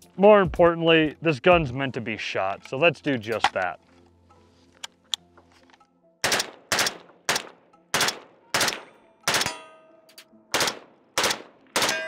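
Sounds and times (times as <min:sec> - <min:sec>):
rifle shots echoing: 0:06.2 - 0:09.6, 0:10.5 - 0:12.0
metallic ring: 0:09.4 - 0:10.1.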